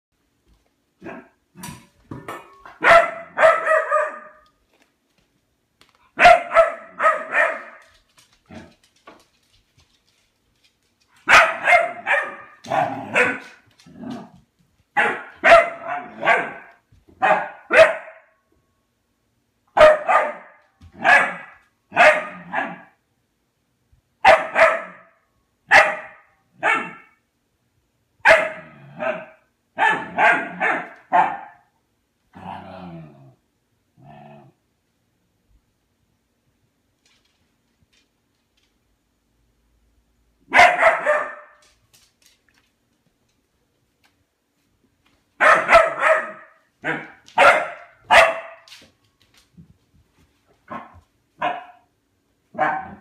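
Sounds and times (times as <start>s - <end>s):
dog barking: 2.8s - 4.4s, 6.2s - 7.8s, 11.2s - 13.6s, 15.0s - 18.4s, 19.8s - 23.0s, 24.2s - 27.2s, 28.2s - 31.7s, 40.5s - 41.6s, 45.4s - 48.7s, 50.7s - 51.9s, 52.5s - 53.0s.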